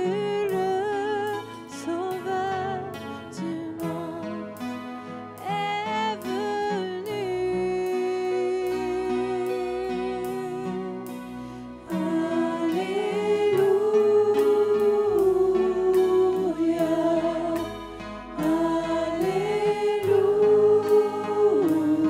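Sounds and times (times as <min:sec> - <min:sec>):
instrumental backing: 0:00.0 - 0:22.0
women singing together: 0:11.9 - 0:22.0.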